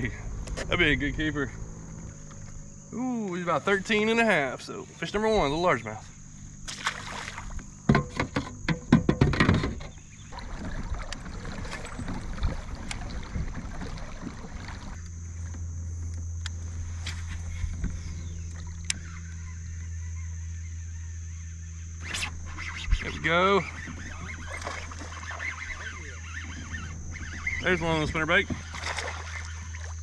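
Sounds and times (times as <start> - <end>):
steady low hum: 0.0 - 30.0
water splashing: 6.6 - 7.6, 10.2 - 15.0, 23.6 - 30.0
sharp knocks and clicks: 7.9 - 10.0
high-pitched drone: 18.2 - 29.9.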